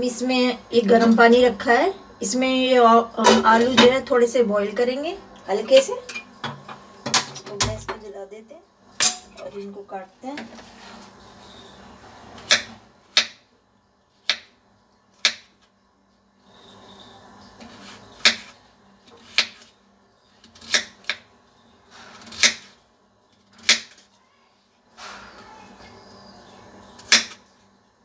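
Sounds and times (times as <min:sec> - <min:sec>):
knife chopping on wooden board: 0:12.4 - 0:13.4, 0:22.2 - 0:22.7.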